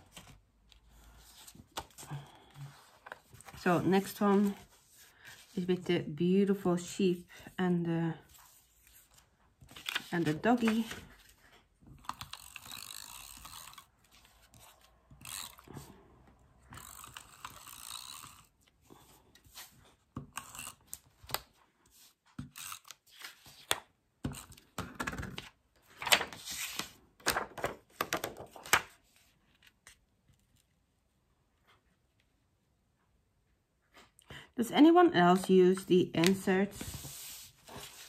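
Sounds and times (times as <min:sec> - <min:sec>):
paper clicks and rustles: 0:08.4 - 0:14.8, 0:24.4 - 0:30.7.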